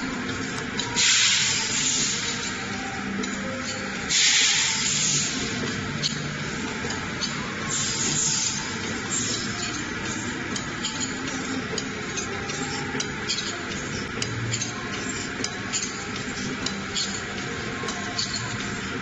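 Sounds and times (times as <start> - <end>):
packing machine hissing: 0.9 - 3.0, 4.0 - 6.7, 7.4 - 10.9.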